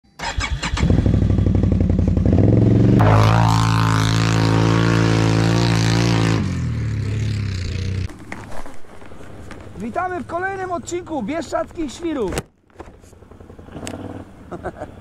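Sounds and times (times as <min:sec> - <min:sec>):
atv engine idling and revving: 0:00.5 - 0:08.1, 0:13.0 - 0:15.0.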